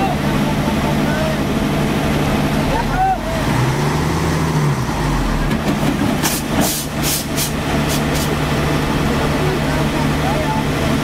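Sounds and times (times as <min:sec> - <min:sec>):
diesel engine idling: 0:00.0 - 0:11.0
short sharp hisses: 0:06.2 - 0:08.3.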